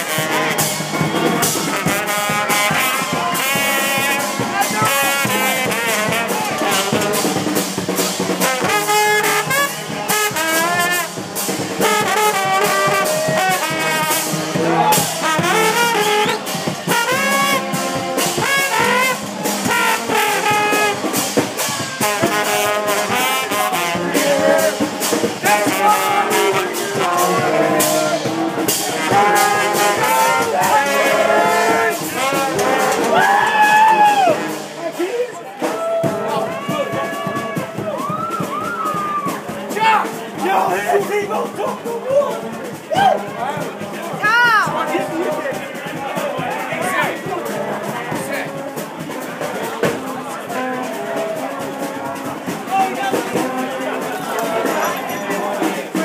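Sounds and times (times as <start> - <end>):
crowd playing kazoos: 0.0 - 41.0, 41.7 - 56.0.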